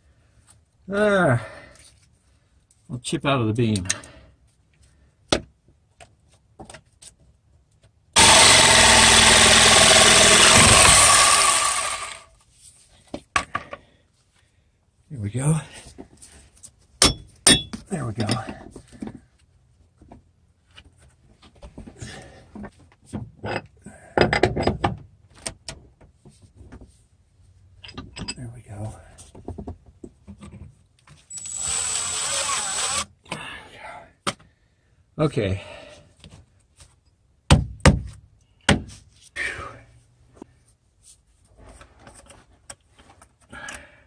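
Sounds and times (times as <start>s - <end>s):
power tool cutting wood: 8.2s - 12.3s, 31.3s - 33.1s
knocks and clinks on steel: 17.0s - 18.4s.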